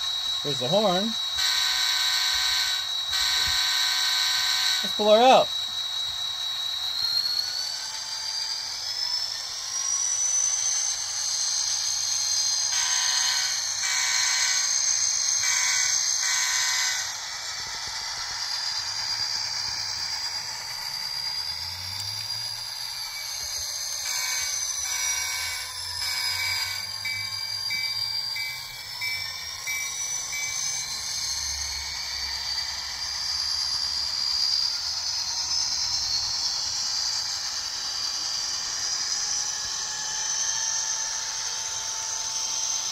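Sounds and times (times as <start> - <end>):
model diesel engine sound with whine: 0.0 - 42.9.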